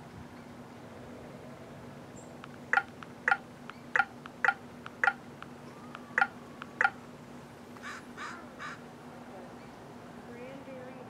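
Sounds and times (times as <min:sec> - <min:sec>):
crow cawing: 0:07.8 - 0:08.9.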